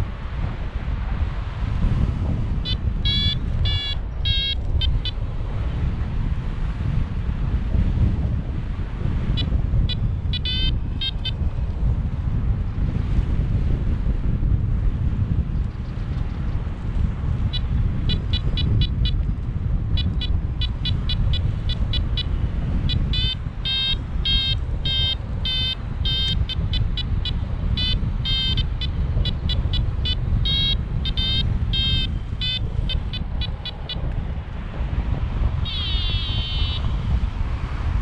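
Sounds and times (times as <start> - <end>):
wind rushing over microphone: 0.0 - 38.0
variometer beeping: 2.6 - 5.2, 9.3 - 11.4, 17.4 - 19.3, 19.9 - 34.2, 35.6 - 37.2.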